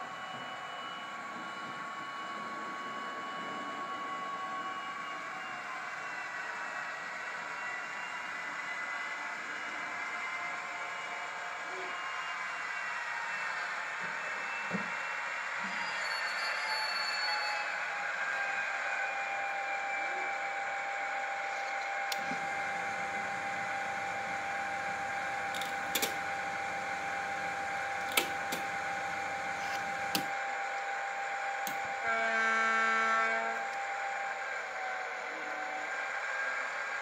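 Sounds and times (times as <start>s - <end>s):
model locomotive mechanical hum: 0.0s - 37.0s
sharp clicks: 25.5s - 26.2s.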